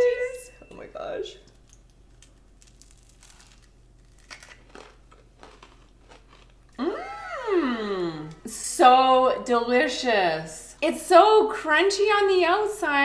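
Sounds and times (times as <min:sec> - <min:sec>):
people crunching crisp snacks: 0:01.6 - 0:07.0
drawn-out vocal exclamation: 0:06.8 - 0:08.5.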